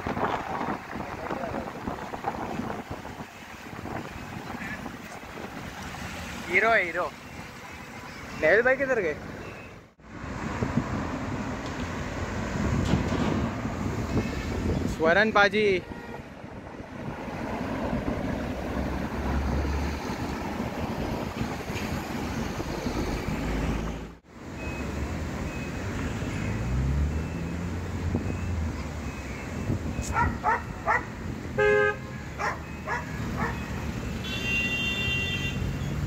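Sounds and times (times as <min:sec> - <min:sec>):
car engines passing: 0:00.0 - 0:36.0
car horn toots: 0:15.8 - 0:16.3, 0:31.6 - 0:32.4, 0:34.1 - 0:35.7.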